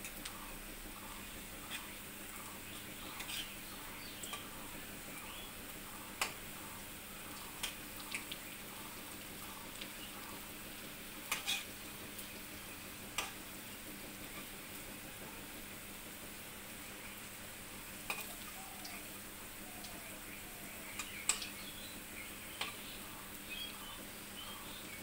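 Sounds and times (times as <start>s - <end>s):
food sizzling in hot oil: 0.0s - 25.0s
spatula clinking and scraping pan: 1.7s - 2.0s, 3.2s - 3.6s, 11.3s - 11.7s.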